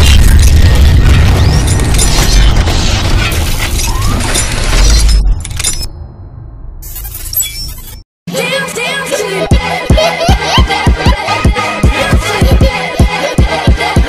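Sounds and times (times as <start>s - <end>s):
deep boom: 0.0s - 4.1s
crashing glass-shattering effect: 0.0s - 8.0s
music: 8.3s - 14.0s.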